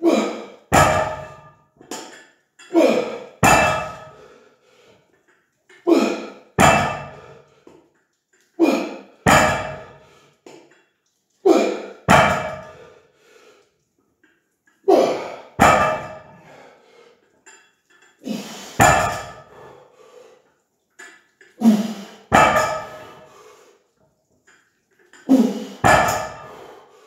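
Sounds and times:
metallic knocks of weight plates: 0.7s - 2.2s, 3.4s - 4.2s, 6.6s - 7.4s, 9.3s - 10.0s, 12.1s - 12.8s, 15.6s - 16.5s, 18.8s - 19.5s, 22.3s - 23.2s, 25.8s - 26.6s.

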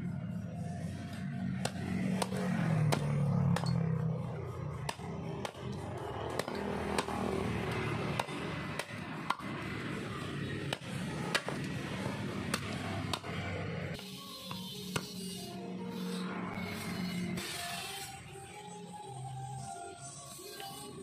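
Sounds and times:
axe chopping wooden stick: 1.6s - 3.8s, 4.7s - 9.9s, 10.6s - 13.5s.

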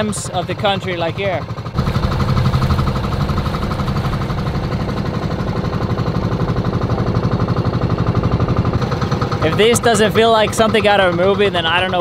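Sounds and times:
boat engine pulsing: 0.0s - 12.0s.

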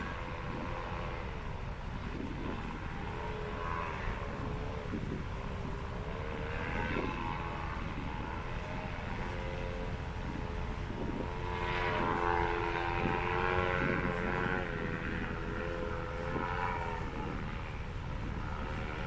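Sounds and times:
low wind rumble: 0.0s - 19.0s
paramotor engine droning overhead: 0.0s - 19.0s.

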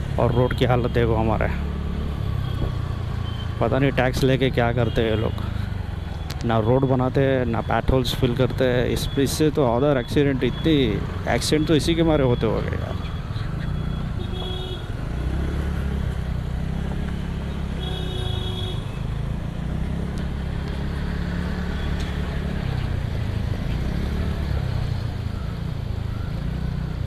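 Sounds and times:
horn honks: 13.8s - 15.0s, 17.7s - 19.1s.

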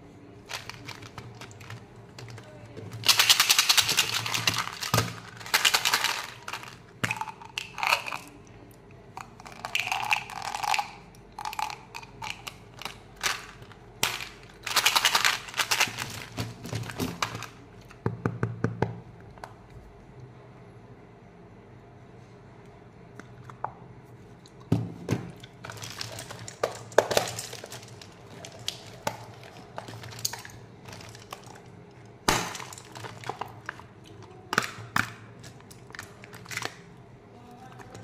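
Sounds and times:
candies rattling in plastic tubes: 0.4s - 8.5s, 9.2s - 17.6s, 25.6s - 36.9s.

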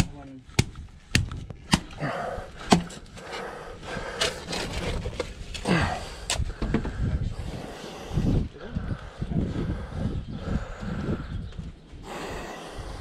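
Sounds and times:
shovel scraping soil: 4.2s - 5.4s.

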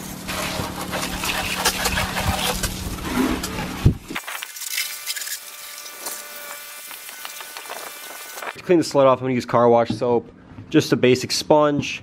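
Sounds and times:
hose spraying water: 0.0s - 3.5s.

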